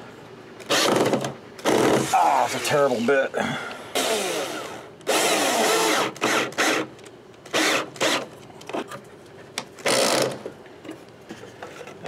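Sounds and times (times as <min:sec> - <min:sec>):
cordless drill driving screws: 0:00.7 - 0:02.0, 0:04.0 - 0:06.9, 0:07.5 - 0:08.3.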